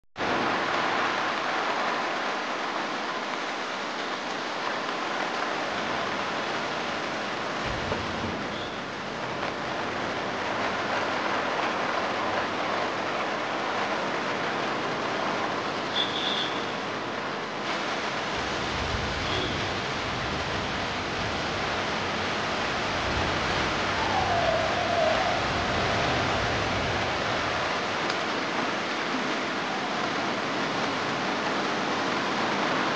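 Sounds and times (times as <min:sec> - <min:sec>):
heavy rain on wet pavement: 0:00.2 - 0:32.9
downward sliding tone: 0:23.7 - 0:26.6.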